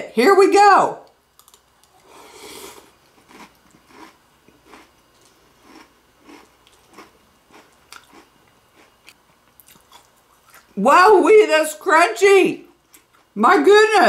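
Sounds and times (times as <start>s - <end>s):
chewing crunchy cereal: 1.4s - 10.8s.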